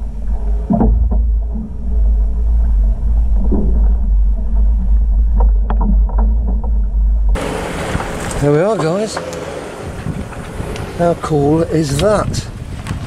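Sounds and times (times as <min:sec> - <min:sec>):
low rumble of towing: 0:00.0 - 0:13.0.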